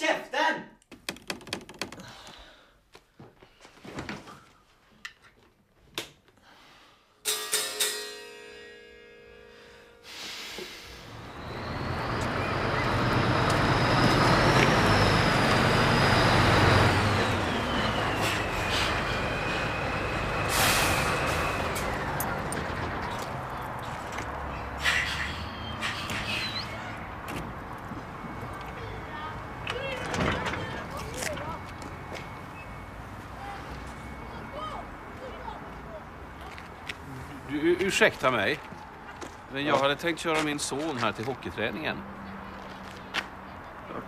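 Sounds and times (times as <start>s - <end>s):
air brakes hissing: 9.6s - 22.3s, 24.5s - 27.1s
lorry diesel engine: 10.0s - 38.3s
brakes squealing: 10.1s - 44.0s.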